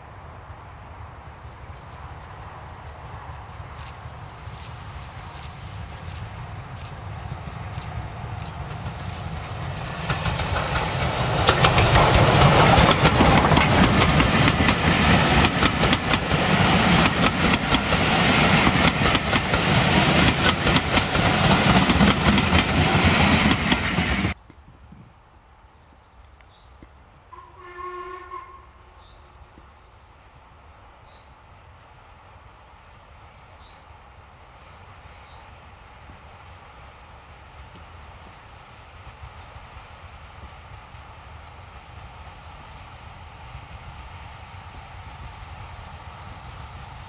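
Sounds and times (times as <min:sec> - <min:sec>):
train rumbling past: 0:00.0 - 0:24.4, 0:26.1 - 0:47.0
wheels clicking over rail joints: 0:07.7 - 0:24.4
distant steam whistle: 0:27.3 - 0:29.1.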